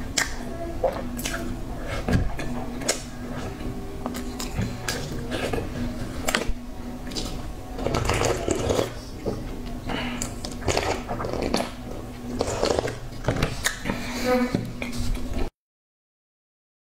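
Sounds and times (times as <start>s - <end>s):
mouth sounds of eating: 0.0s - 9.2s.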